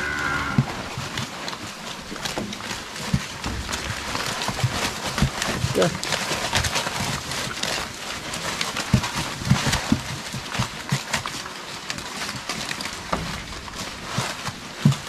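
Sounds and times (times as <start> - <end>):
knocks and thumps: 0.0 - 11.4
leaves rustling: 0.0 - 15.0
pigs chewing: 0.0 - 15.0.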